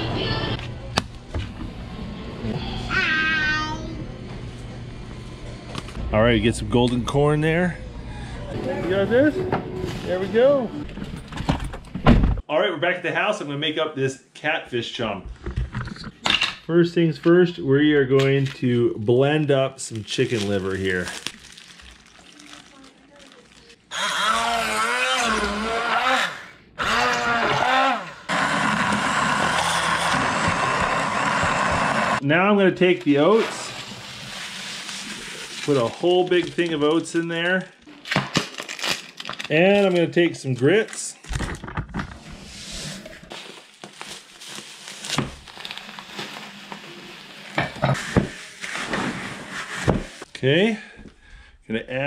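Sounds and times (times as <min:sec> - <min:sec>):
plastic bag crinkling: 0:19.0 - 0:23.9, 0:34.0 - 0:41.3, 0:43.3 - 0:47.6
immersion blender whirring: 0:23.9 - 0:32.2
breadcrumbs pouring into bucket: 0:33.4 - 0:37.2.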